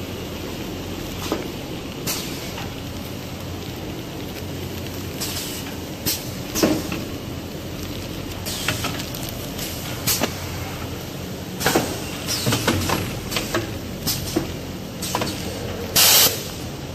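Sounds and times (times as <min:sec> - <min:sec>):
plastic film crinkling: 0:00.9 - 0:11.0.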